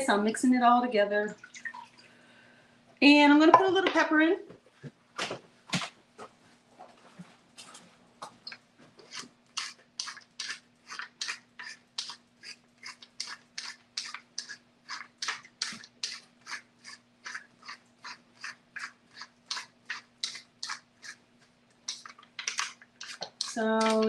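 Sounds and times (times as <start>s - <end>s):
pepper mill grinding: 9.0s - 24.0s.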